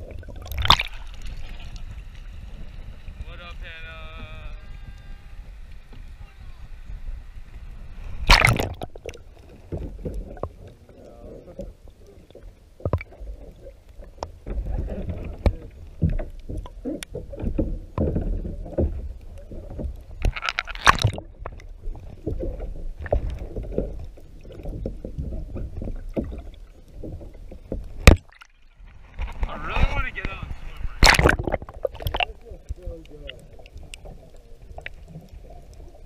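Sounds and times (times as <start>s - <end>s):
underwater clicks and crackles: 0.0s - 36.0s
underwater sloshing rumble: 0.0s - 36.0s
camera splashing into water: 0.4s - 1.2s, 8.2s - 9.0s, 20.2s - 21.2s, 28.0s - 28.5s, 31.0s - 32.3s.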